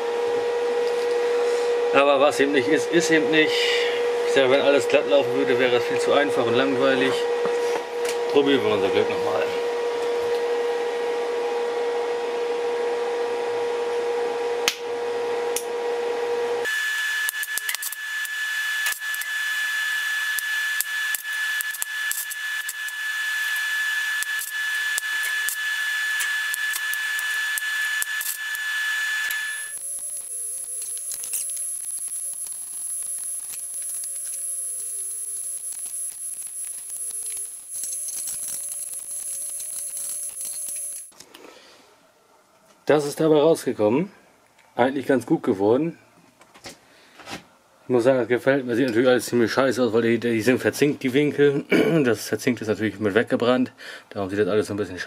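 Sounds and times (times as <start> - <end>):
welding arc crackling and sizzling: 16.6 - 41.2.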